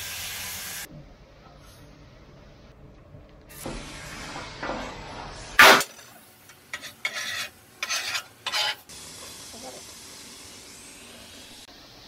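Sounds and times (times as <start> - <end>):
metal scraping on steel: 6.7 - 8.8.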